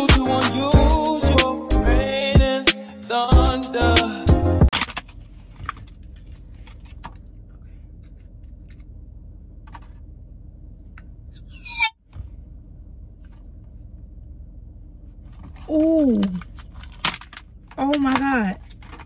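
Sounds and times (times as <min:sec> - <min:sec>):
low hum in car cabin: 0:02.0 - 0:19.0
plastic packaging rustling and clicking: 0:04.7 - 0:07.4, 0:15.4 - 0:19.0.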